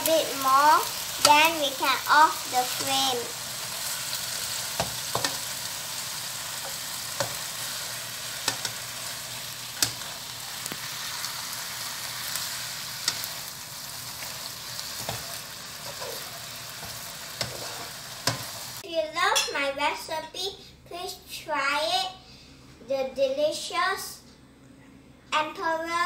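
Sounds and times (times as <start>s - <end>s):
vegetables sizzling in a wok: 0.0s - 19.5s
spatula scraping and knocking pan: 4.7s - 5.6s, 6.6s - 8.9s, 14.2s - 18.6s.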